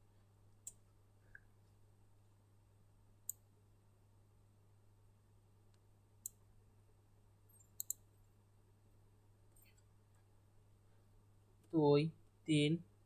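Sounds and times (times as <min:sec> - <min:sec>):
keyboard and mouse clicks: 0:07.5 - 0:08.0.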